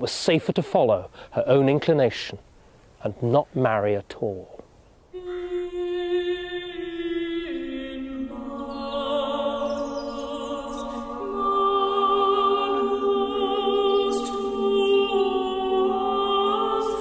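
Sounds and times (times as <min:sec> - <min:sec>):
slow choral singing: 0:05.1 - 0:17.0.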